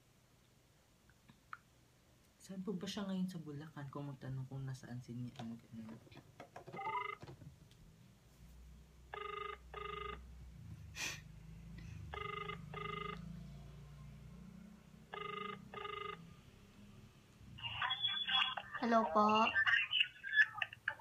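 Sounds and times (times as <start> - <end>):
phone ringback tone: 6.7 - 7.2, 9.1 - 10.3, 12.1 - 13.5, 15.1 - 16.4.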